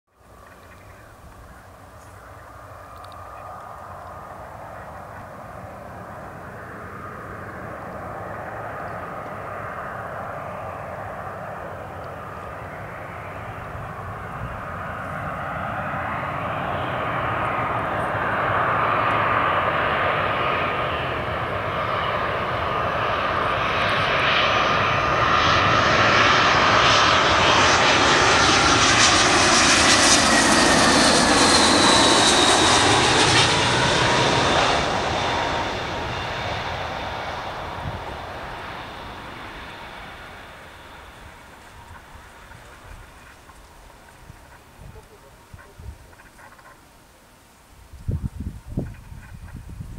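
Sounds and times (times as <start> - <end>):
jet airliner whine and rumble: 0.2 - 49.9.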